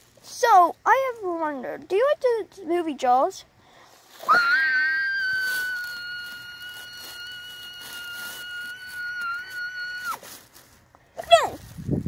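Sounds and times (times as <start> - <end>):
child squealing: 4.2 - 10.2.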